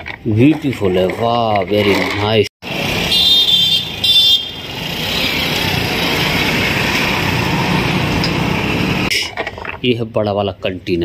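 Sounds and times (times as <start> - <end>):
truck passing close by: 2.6 - 9.1
car horn honks: 3.1 - 4.6.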